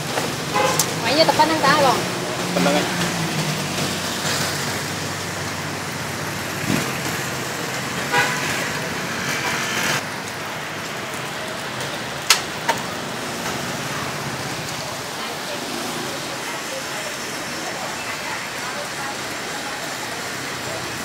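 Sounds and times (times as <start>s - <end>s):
traffic hiss: 0.0s - 21.0s
car horn toot: 0.5s - 0.9s, 8.1s - 8.6s.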